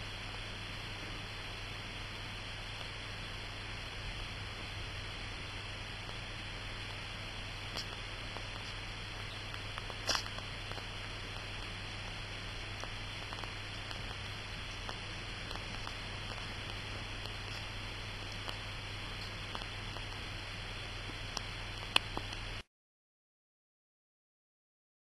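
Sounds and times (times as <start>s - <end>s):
low hum: 0.0s - 22.6s
room tone hiss: 0.0s - 22.7s
faint small ticks: 6.0s - 20.3s, 21.0s - 22.6s.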